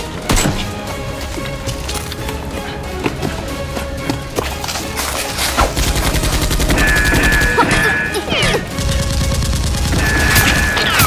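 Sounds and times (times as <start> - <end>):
rapid automatic gunfire: 5.8 - 7.6, 8.7 - 11.0.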